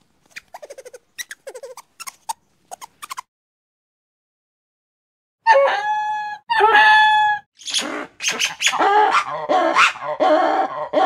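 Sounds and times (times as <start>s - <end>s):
lemur yelping calls: 7.6s - 10.0s.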